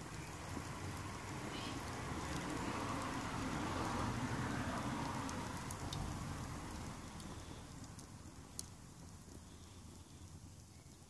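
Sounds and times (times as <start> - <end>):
fire crackling and popping: 0.0 - 11.0.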